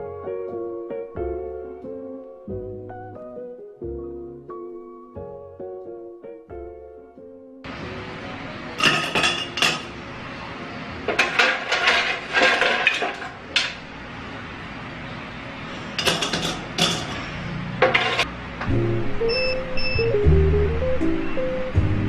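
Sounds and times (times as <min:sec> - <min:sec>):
ice cubes clinking into glass: 0:08.8 - 0:09.9, 0:11.1 - 0:13.7.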